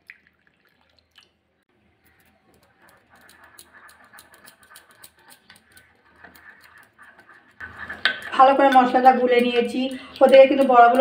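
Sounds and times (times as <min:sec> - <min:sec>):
spoon scraping glass bowl: 0:02.1 - 0:11.0.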